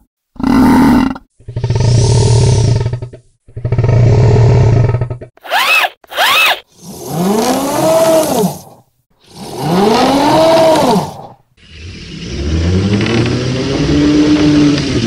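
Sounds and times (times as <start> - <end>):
slowed squeak toy low buzz: 5.4 - 8.7.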